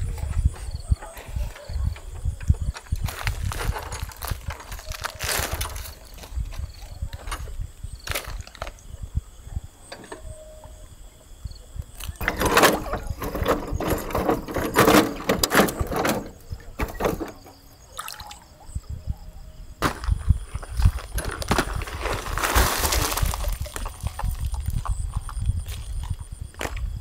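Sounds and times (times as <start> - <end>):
wading and splashing in water: 17.8 - 18.6.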